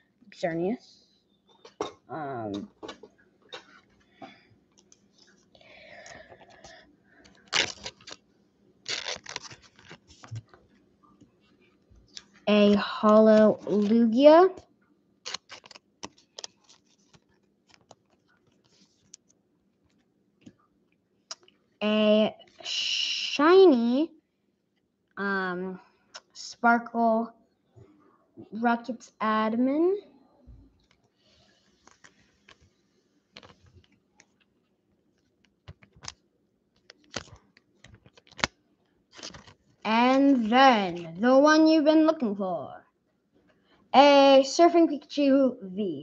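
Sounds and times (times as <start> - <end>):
trading cards and plastic sleeve handling: 6.0 - 8.2, 8.9 - 10.6, 15.2 - 19.3, 31.8 - 32.6, 33.3 - 34.4, 35.5 - 36.2, 36.8 - 38.5, 39.1 - 41.1.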